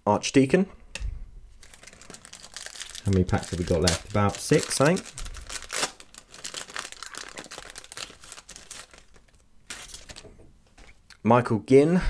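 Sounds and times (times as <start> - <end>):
wrapper crinkling and tearing: 1.6 - 10.3.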